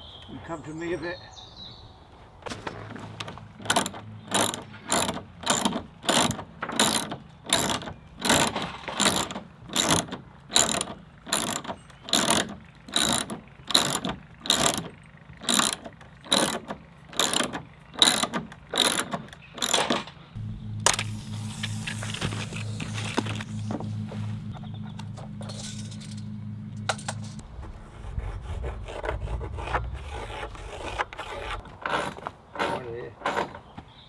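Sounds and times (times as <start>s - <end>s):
ratchet wrench clicking: 3.6s - 19.9s.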